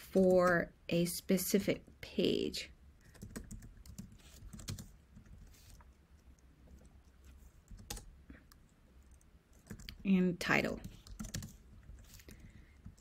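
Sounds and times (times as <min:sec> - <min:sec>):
computer keyboard typing: 0:03.0 - 0:05.9, 0:06.7 - 0:10.0, 0:10.8 - 0:13.0.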